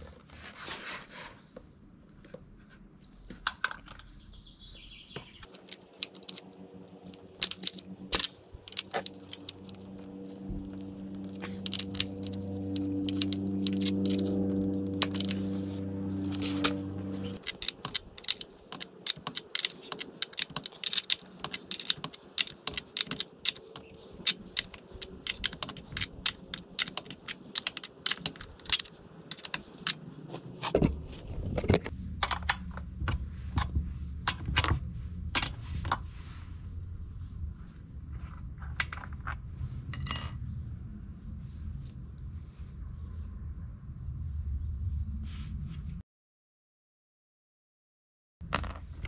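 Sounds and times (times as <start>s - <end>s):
low steady rumble: 5.4s - 18.6s, 30.8s - 46.0s
metal tools clicking on nuts: 7.1s - 14.3s, 17.3s - 30.0s.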